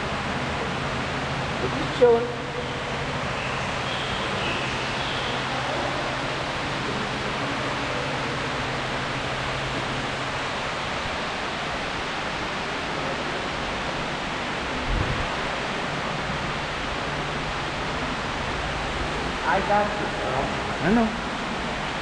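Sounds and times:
steady rushing noise: 4.9s - 22.0s.

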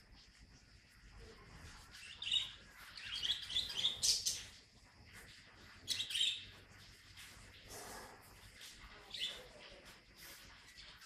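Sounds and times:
high-pitched chirping calls: 2.0s - 4.5s, 5.8s - 6.6s.

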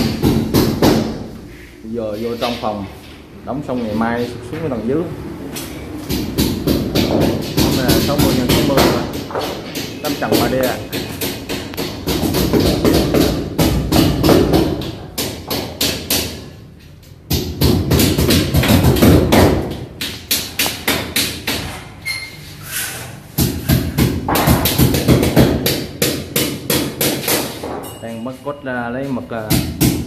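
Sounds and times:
hammering nails: 0.0s - 1.3s, 6.0s - 16.6s, 17.2s - 22.0s, 23.3s - 28.0s, 29.4s - 30.0s.

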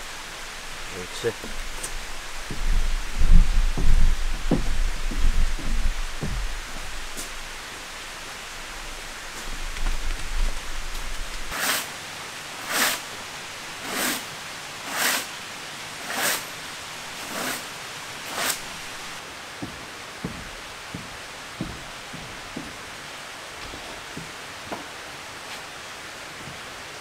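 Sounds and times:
steady hiss: 0.0s - 27.0s
short swishing strokes: 12.6s - 13.0s, 16.0s - 16.5s.

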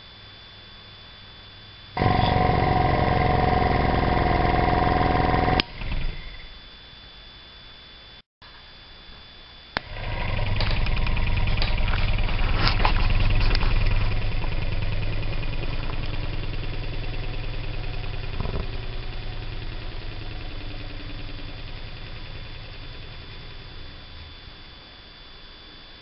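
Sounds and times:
air compressor pulsing: 2.0s - 6.5s, 9.8s - 24.6s.

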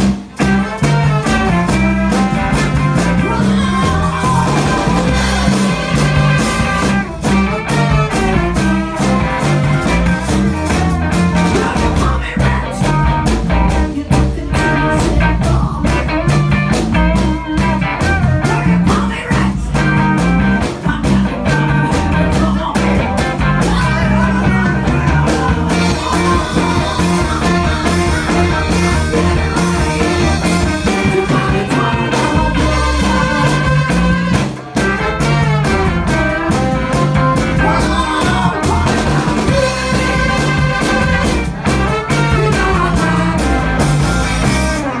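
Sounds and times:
horn section: 0.0s - 45.0s
live ska band: 0.0s - 45.0s
woman singing: 3.0s - 6.9s, 11.4s - 29.0s, 30.0s - 34.4s, 37.6s - 41.2s.

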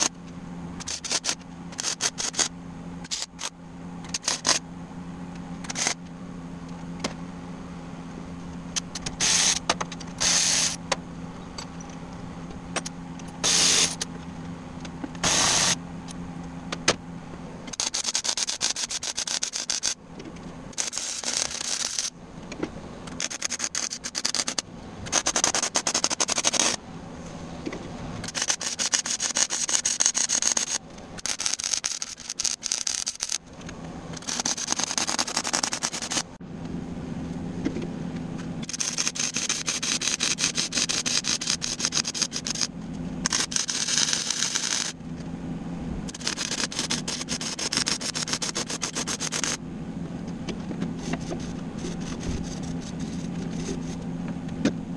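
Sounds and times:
steady low hum: 0.0s - 54.9s
welder arc crackling: 20.8s - 22.1s, 28.2s - 33.4s, 38.6s - 45.0s.

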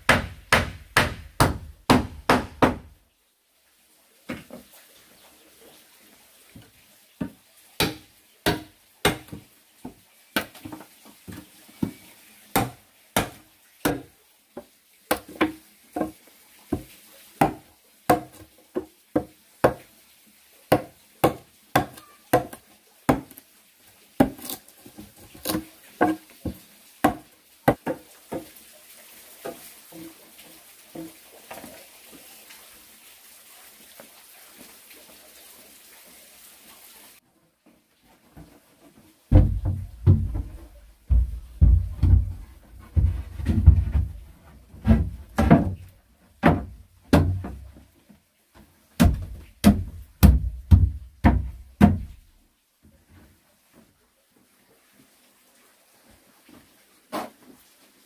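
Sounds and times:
hand tool knocking on wood: 39.3s - 44.2s, 49.0s - 52.2s.

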